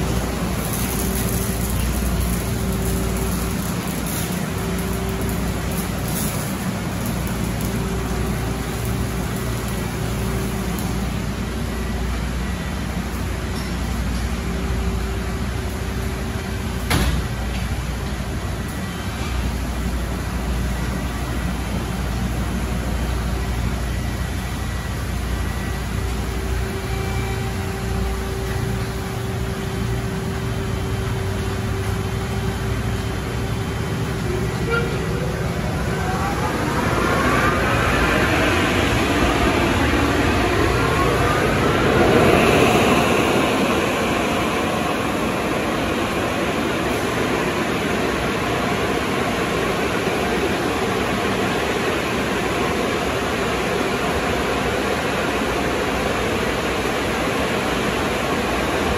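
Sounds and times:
car wash machinery rumbling: 0:00.0 - 0:58.9
faint constant whine: 0:00.0 - 0:58.9
low motor hum: 0:23.0 - 0:48.6.

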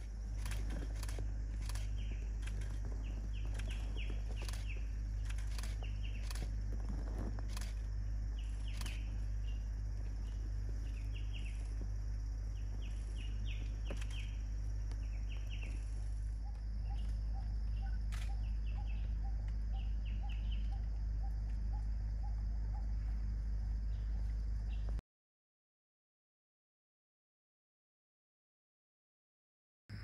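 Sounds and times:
low rumble: 0:00.0 - 0:25.0
small birds chirping: 0:00.0 - 0:25.0
sharp ticks: 0:00.2 - 0:06.6, 0:07.4 - 0:09.2, 0:16.5 - 0:22.9.

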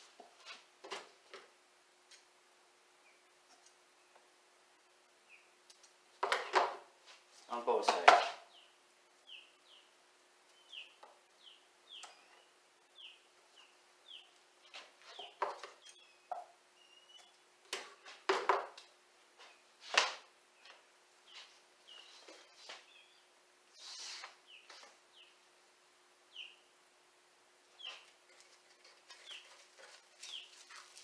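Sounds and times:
small bird chirping: 0:05.2 - 0:05.6, 0:08.4 - 0:17.4, 0:20.6 - 0:25.4, 0:26.3 - 0:26.7, 0:27.7 - 0:31.0
tape crackling: 0:28.0 - 0:31.0.

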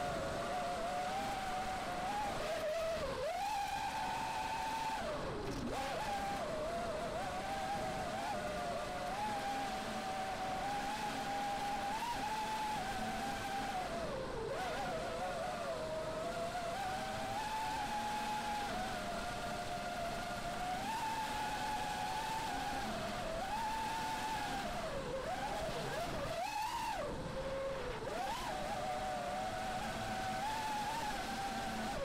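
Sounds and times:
quadcopter motors whining: 0:00.0 - 0:32.0.

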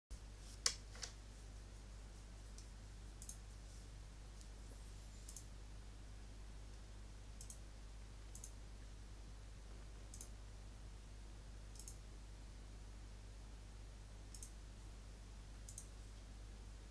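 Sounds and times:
low electrical hum: 0:00.1 - 0:16.9
computer mouse clicks: 0:02.5 - 0:03.4, 0:05.2 - 0:05.5, 0:07.4 - 0:07.6, 0:08.3 - 0:08.6, 0:10.1 - 0:10.4, 0:11.7 - 0:12.0, 0:14.3 - 0:14.6, 0:15.6 - 0:16.0.

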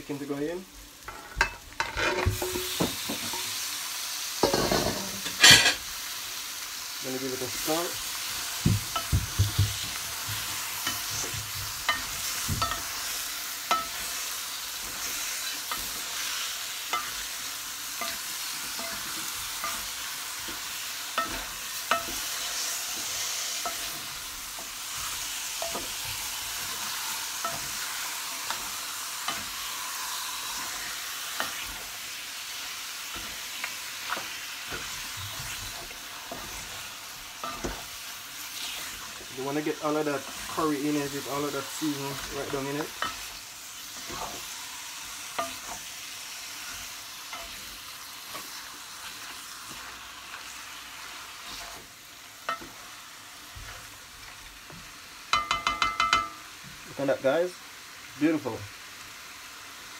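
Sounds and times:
chicken sizzling in a pot: 0:00.0 - 0:59.9
spoon scraping a metal pot: 0:01.8 - 0:02.7.

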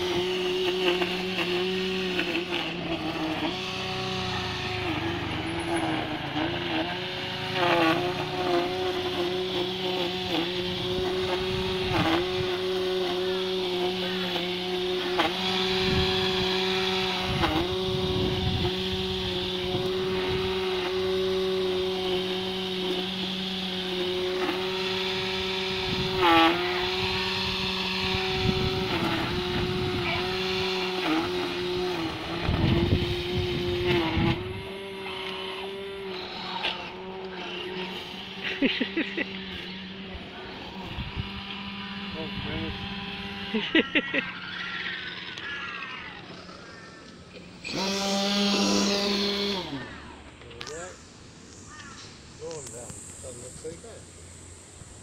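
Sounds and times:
small motor whining: 0:00.0 - 0:55.0.

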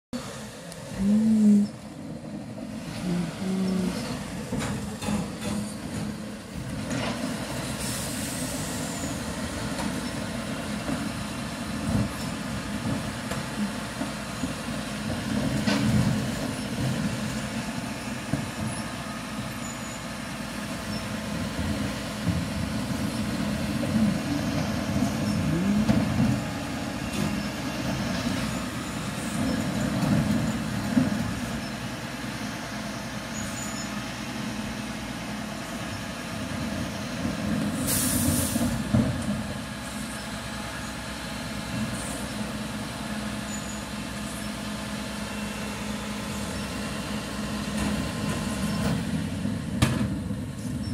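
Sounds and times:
diesel engine running: 0:00.1 - 0:50.9
air brakes hissing: 0:07.7 - 0:09.2, 0:37.8 - 0:38.8.

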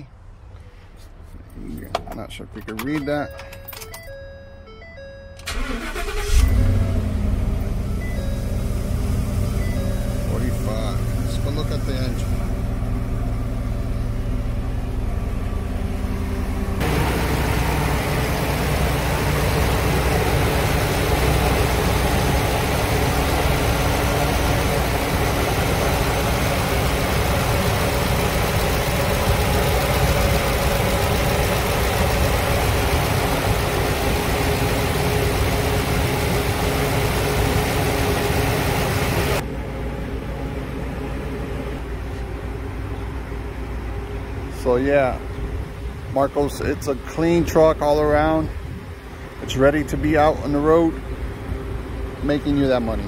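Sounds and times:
truck engine idling: 0:05.4 - 0:53.0.

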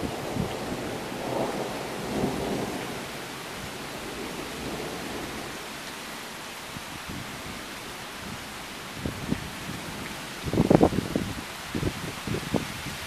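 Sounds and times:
wind noise on microphone: 0:00.0 - 0:02.8, 0:06.7 - 0:13.0
thunder rumble: 0:00.0 - 0:05.7
rain hissing: 0:00.0 - 0:13.0.

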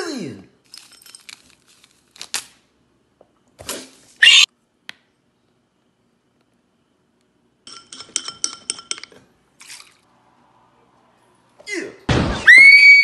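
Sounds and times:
high-pitched scream: 0:04.2 - 0:04.5, 0:12.4 - 0:13.0
spoon clinking against glass bowl: 0:07.7 - 0:09.2
thump: 0:12.1 - 0:12.5.

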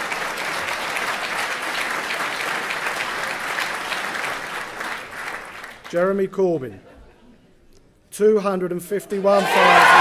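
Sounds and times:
large audience applauding: 0:00.0 - 0:05.9, 0:09.4 - 0:10.0.

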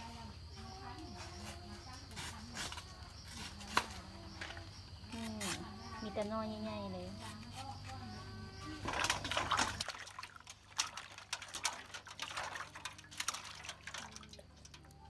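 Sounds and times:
water splashing in a metal basin: 0:08.3 - 0:15.0
water dripping: 0:08.6 - 0:15.0.

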